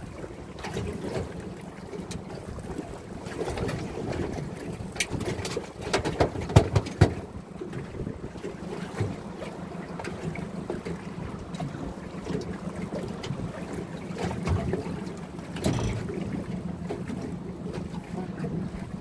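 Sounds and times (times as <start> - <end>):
knocks on boat: 5.0 - 7.3, 15.5 - 17.2
wind on microphone: 6.2 - 9.4.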